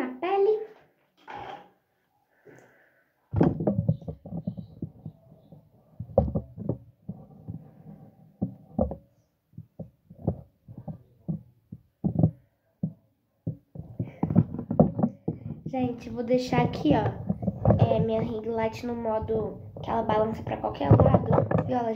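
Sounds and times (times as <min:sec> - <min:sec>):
phone handling thumps and rubbing: 0:03.4 - 0:05.4, 0:06.0 - 0:09.0, 0:13.5 - 0:15.8, 0:16.5 - 0:18.3, 0:20.4 - 0:21.7.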